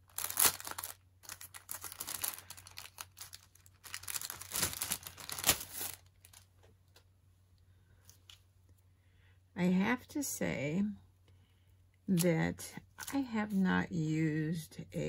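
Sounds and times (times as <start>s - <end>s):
plastic stencil crinkling: 0.0s - 7.1s.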